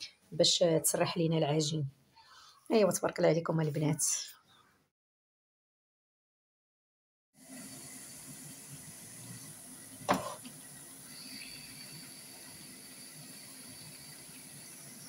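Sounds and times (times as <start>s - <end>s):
pastries sizzling in hot oil: 7.4s - 15.0s.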